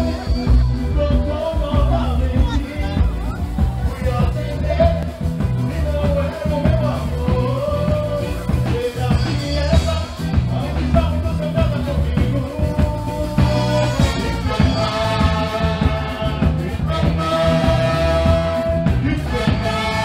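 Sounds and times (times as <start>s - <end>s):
heavy drum and bass beat: 0.0s - 20.0s
person singing: 0.0s - 20.0s
horn section with trombones: 13.3s - 20.0s.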